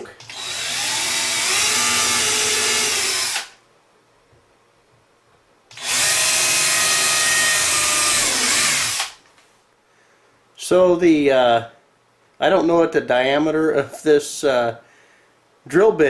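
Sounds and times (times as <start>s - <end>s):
power drill boring into wood: 0.2s - 3.6s, 5.7s - 9.2s.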